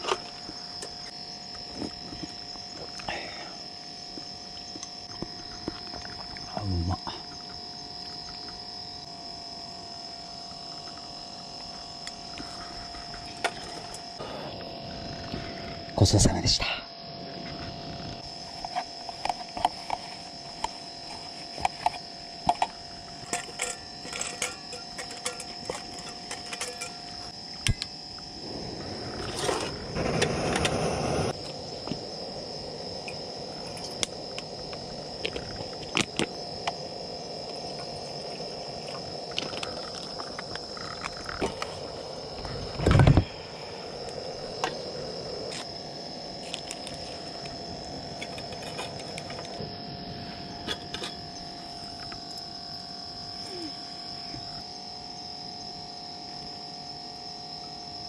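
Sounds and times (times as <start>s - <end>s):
frogs calling: 31.3s - 55.2s.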